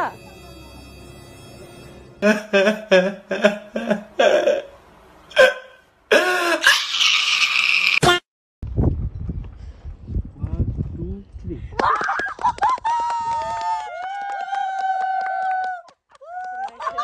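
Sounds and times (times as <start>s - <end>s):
low outdoor background noise: 0.0s - 6.7s
man crying and wailing: 2.2s - 4.7s, 5.3s - 7.3s.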